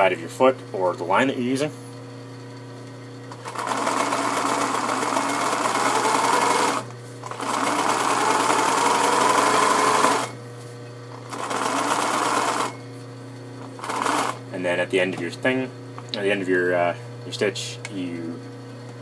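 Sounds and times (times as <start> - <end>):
sewing machine whirring: 3.3 - 10.4, 11.2 - 12.8, 13.6 - 14.4.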